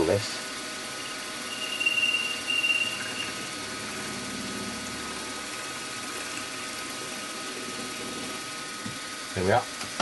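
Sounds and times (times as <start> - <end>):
machine spindle humming: 0.0 - 9.9
drill bit squealing: 0.9 - 5.2.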